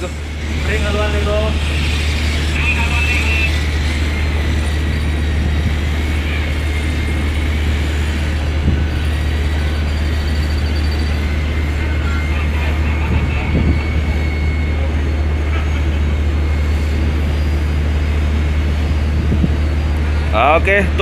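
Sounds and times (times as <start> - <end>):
ship machinery drone: 0.0 - 21.0
faint high whine: 8.6 - 18.1.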